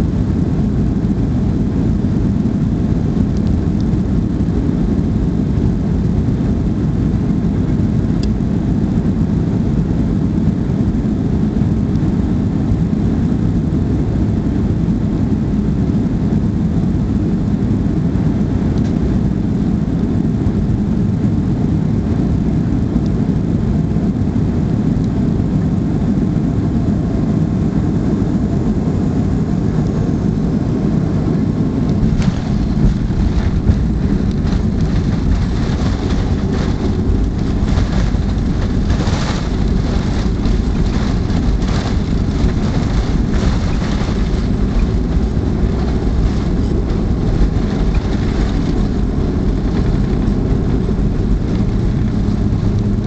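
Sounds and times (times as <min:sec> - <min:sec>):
jet engine rumble: 0:00.0 - 0:53.0
rushing air: 0:28.6 - 0:53.0
rattles and knocks: 0:31.9 - 0:50.5.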